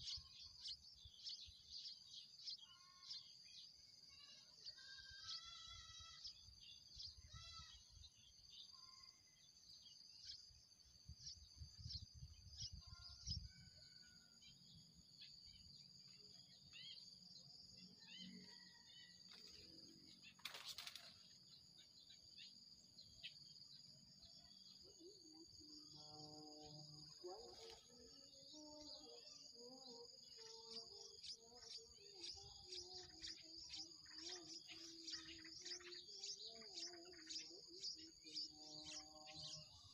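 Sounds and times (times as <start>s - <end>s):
faint bird chirps: 0.0s - 39.9s
high-pitched insect drone: 19.3s - 39.9s
brief rustle: 20.4s - 21.2s.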